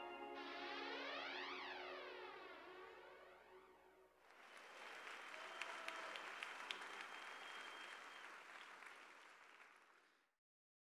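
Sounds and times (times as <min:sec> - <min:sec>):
audience applauding: 0:04.2 - 0:10.3.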